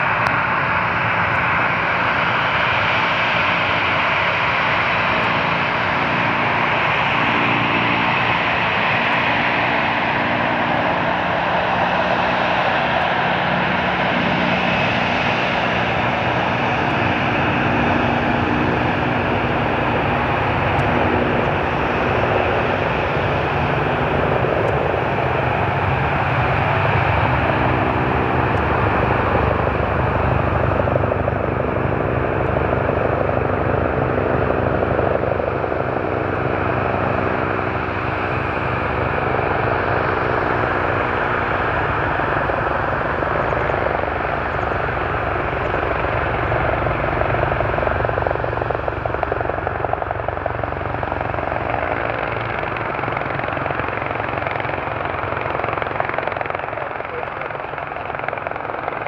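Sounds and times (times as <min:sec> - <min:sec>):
helicopter rotor chopping: 0:00.0 - 0:59.0
turbines humming: 0:00.0 - 0:59.0.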